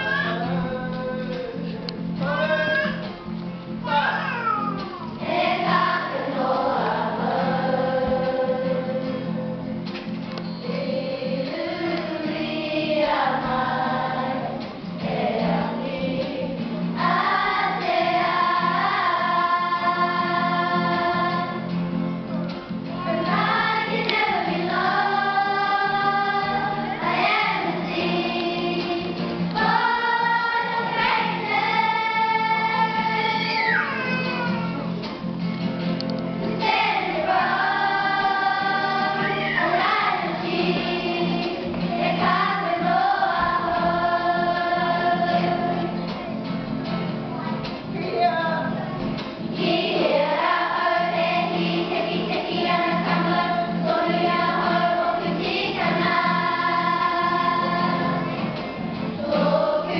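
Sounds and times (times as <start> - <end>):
children singing together: 0.0 - 1.6, 4.2 - 9.6, 10.6 - 35.1, 36.4 - 59.9
strummed guitar: 0.0 - 59.9.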